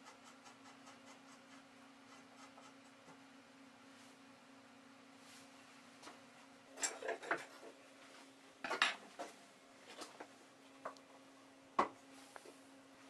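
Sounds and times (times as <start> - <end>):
faint hum: 0.0 - 13.0.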